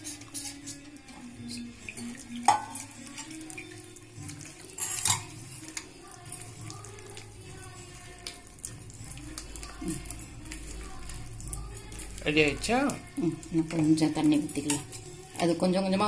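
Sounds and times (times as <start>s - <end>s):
steel vessels clinking: 0.3s - 3.8s, 4.6s - 5.9s.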